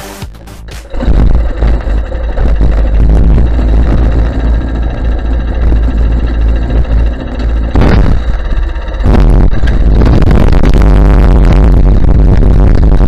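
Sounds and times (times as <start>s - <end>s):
go-kart engine idling: 0.8s - 10.8s.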